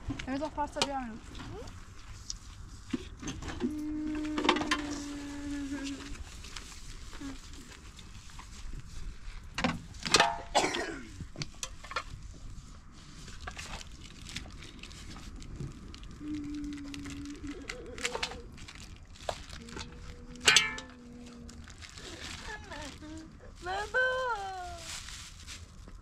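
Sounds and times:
metal pot and lid clattering: 20.4s - 21.0s.

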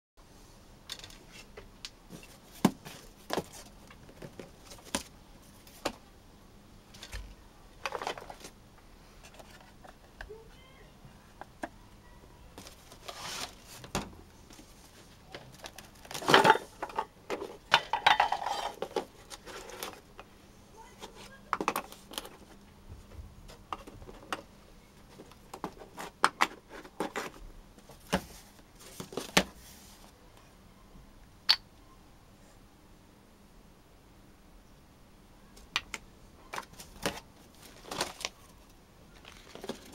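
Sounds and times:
cardboard and packing rustling: 1.1s - 6.0s, 6.9s - 8.6s, 12.5s - 17.7s, 18.3s - 20.1s, 20.8s - 30.1s, 36.5s - 39.9s.

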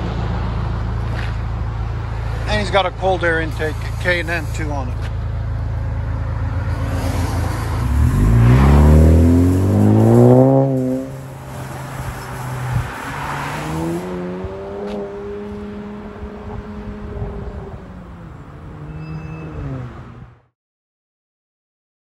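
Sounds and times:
car engine accelerating: 4.5s - 20.5s.

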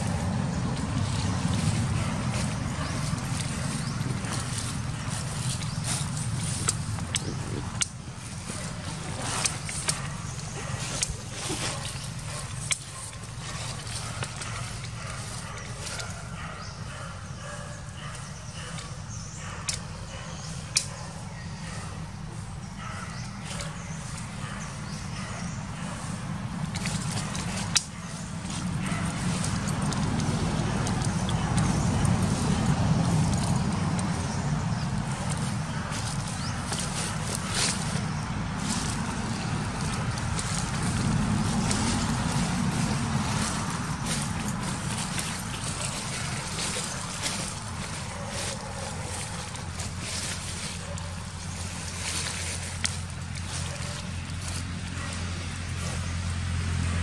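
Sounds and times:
wind buffeting microphone: 0.0s - 16.4s, 23.2s - 50.2s
steady low rumble: 0.0s - 16.9s, 21.6s - 57.0s.

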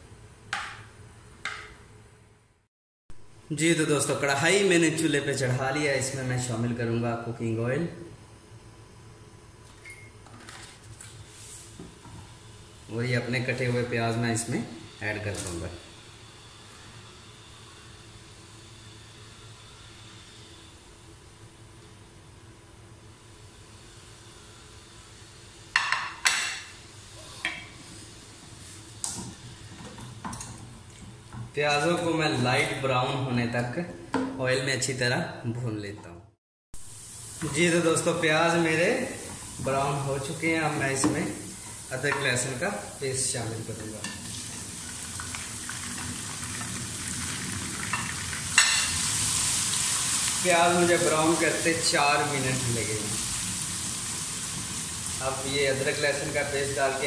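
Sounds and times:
onions frying in oil: 23.0s - 30.4s, 36.8s - 57.0s.

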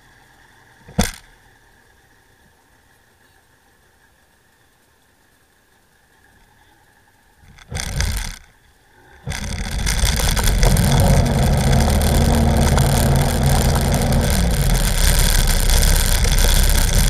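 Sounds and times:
boat engine running: 7.4s - 17.0s
loud rush of noise: 9.3s - 17.0s.

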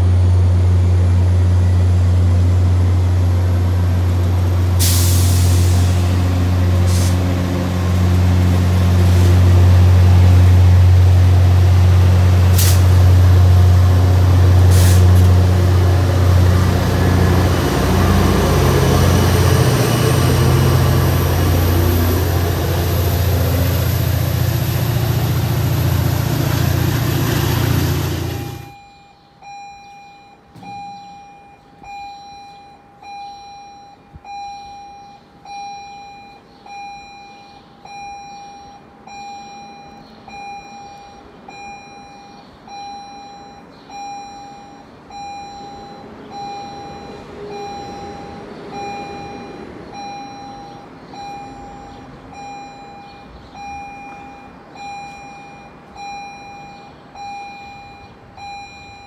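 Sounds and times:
distant train engine rumble: 0.0s - 28.8s, 44.9s - 58.5s
electronic warning beeps: 17.3s - 59.0s.

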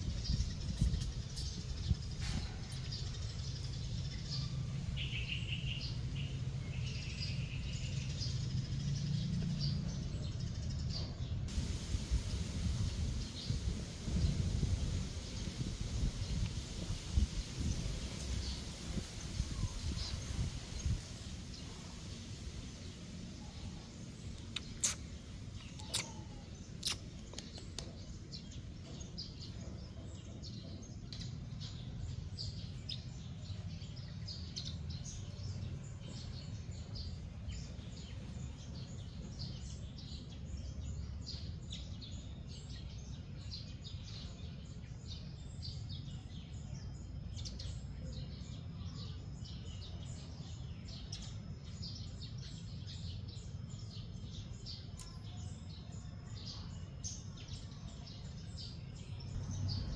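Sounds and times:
low background rumble: 0.0s - 40.9s, 58.9s - 59.9s
small birds chirping: 0.0s - 59.9s.

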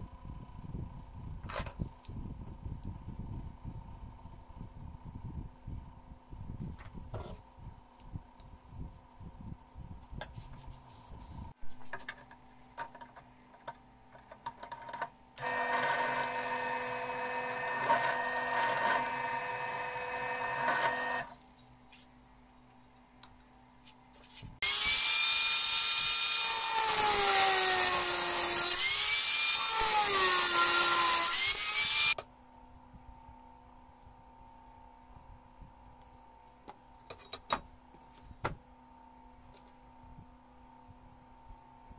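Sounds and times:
drill press drilling wood: 15.4s - 21.3s
handheld power drill running: 15.4s - 21.3s, 24.6s - 32.2s.

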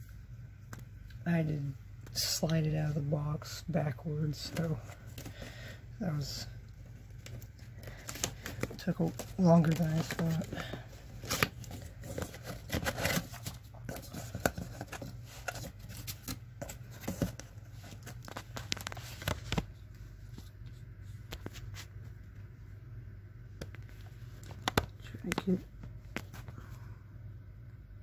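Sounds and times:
steady low hum: 0.0s - 28.0s
cardboard boxes handled: 7.2s - 19.7s.

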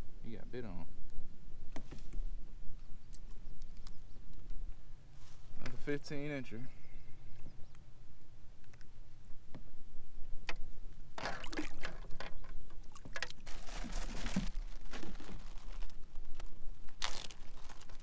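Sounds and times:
water splashing against a kayak: 11.2s - 15.3s.

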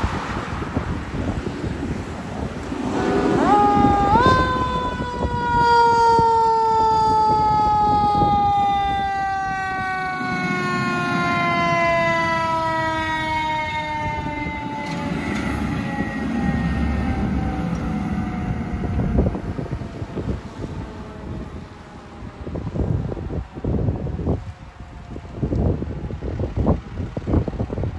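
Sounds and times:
fire truck siren: 0.0s - 27.9s.

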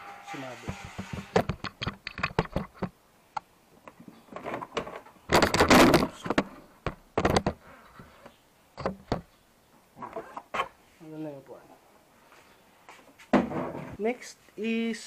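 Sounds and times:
hard plastic clattering and scraping: 0.6s - 3.0s, 3.9s - 9.3s.

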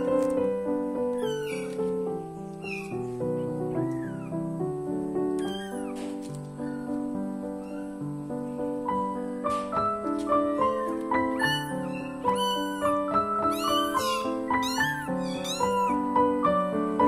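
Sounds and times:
kittens meowing: 0.0s - 0.4s, 1.1s - 4.4s, 5.4s - 8.2s, 10.5s - 16.2s
piano music: 0.0s - 17.0s.

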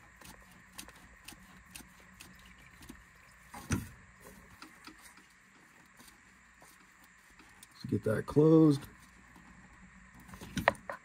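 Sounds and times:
hand rubbing plastic: 0.0s - 8.0s.

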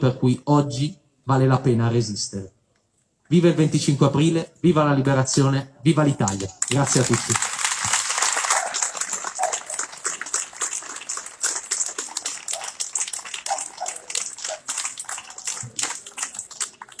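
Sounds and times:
crowd applauding: 6.6s - 17.0s.

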